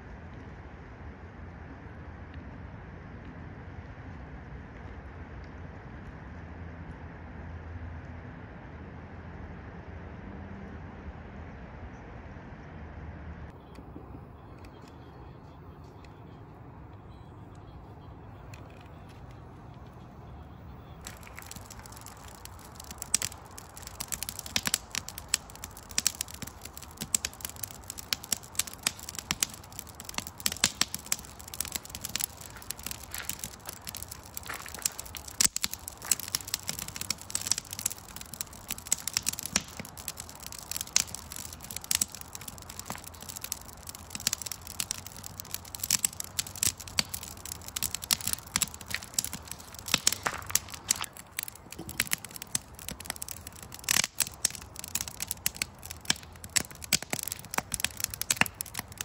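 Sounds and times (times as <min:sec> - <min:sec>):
wood fire crackling: 0:18.2 - 0:59.0
sharp fire pops: 0:20.8 - 0:59.0.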